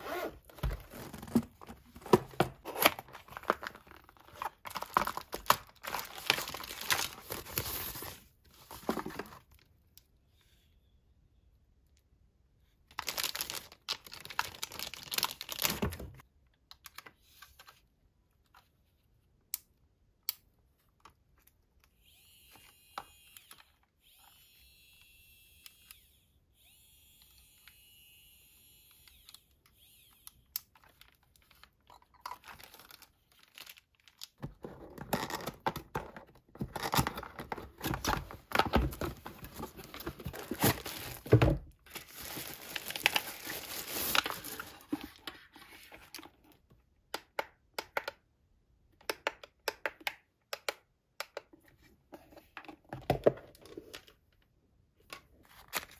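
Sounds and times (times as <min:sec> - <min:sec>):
plastic packaging crinkling: 0:00.1 - 0:09.4, 0:12.9 - 0:16.2, 0:30.8 - 0:34.4, 0:36.8 - 0:45.2
electric nail drill whine: 0:22.0 - 0:30.3
plastic bag pulled off: 0:39.2 - 0:45.0.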